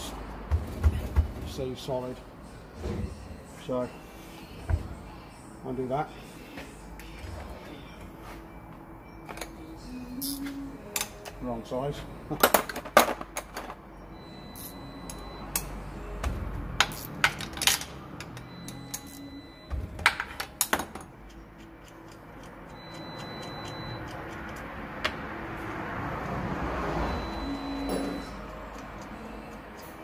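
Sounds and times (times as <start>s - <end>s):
metallic clinks of spanner and bolt: 16.8s - 19.3s.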